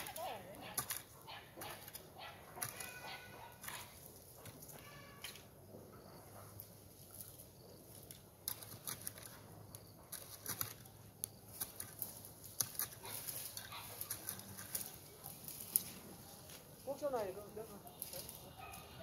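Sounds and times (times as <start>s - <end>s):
hoe chopping and scraping dirt: 0.0s - 5.5s, 8.0s - 16.7s.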